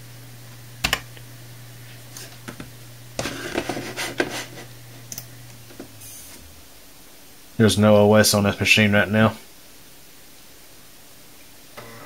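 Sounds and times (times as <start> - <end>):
computer fan humming: 0.0 - 9.7
scratchy rustle: 3.2 - 4.8.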